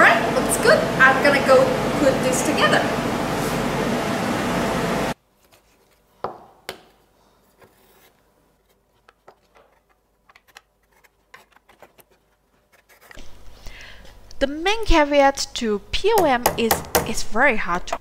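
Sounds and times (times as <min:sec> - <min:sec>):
laser cutter running: 0:00.0 - 0:05.2.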